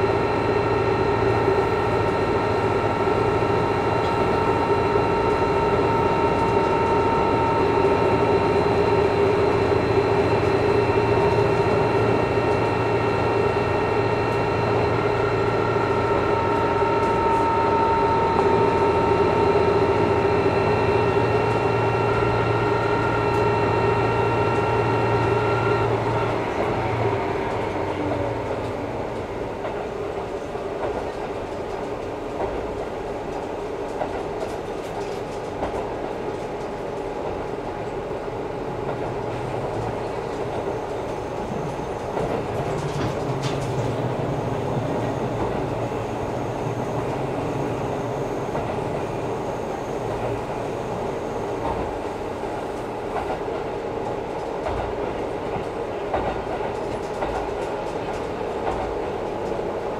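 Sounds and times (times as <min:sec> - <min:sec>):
railcar engine droning: 0:00.0 - 0:59.9
train wheels on rails: 0:00.0 - 0:59.9.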